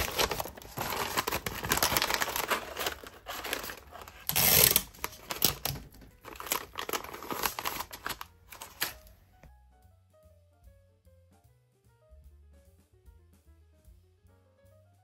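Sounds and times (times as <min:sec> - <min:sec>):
paper crinkling and rustling: 0:00.0 - 0:09.1.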